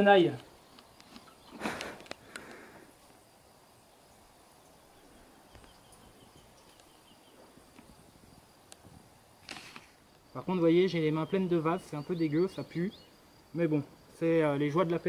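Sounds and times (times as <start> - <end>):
small clicks: 0.4 - 2.6
brief rustle: 9.4 - 10.0.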